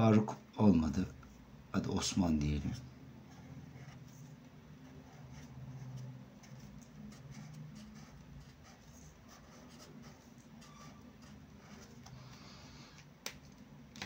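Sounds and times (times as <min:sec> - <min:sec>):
marker scratching on paper: 0:03.3 - 0:12.5.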